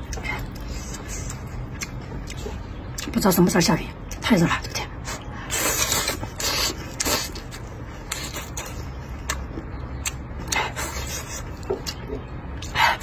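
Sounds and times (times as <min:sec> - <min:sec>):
wet chewing smacks: 0:05.5 - 0:12.8.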